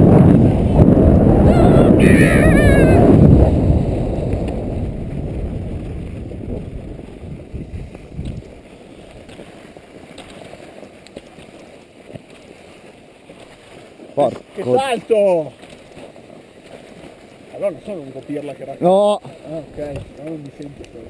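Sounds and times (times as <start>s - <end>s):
wind on camera microphone: 0.0s - 9.7s, 19.7s - 21.0s.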